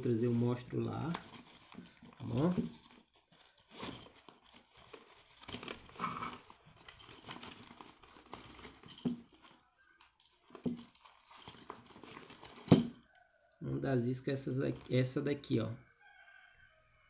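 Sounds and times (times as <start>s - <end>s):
rummaging among fishing lures: 0.0s - 13.4s.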